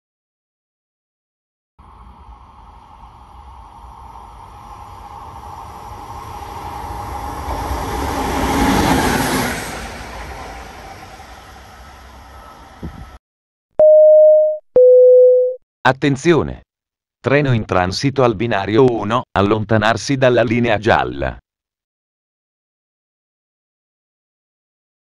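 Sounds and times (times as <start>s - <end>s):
electric locomotive passing: 1.8s - 13.2s.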